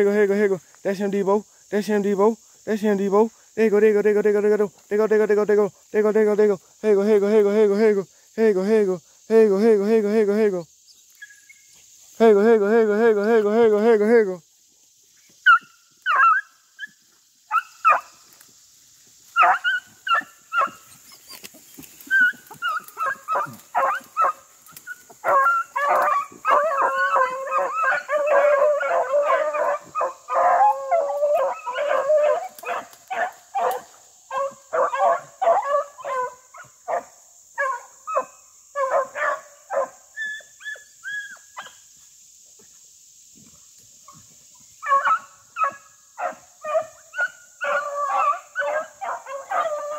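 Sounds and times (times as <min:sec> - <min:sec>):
hounds baying and barking: 0:15.4 - 0:18.2, 0:19.2 - 0:41.8, 0:44.0 - 0:49.9.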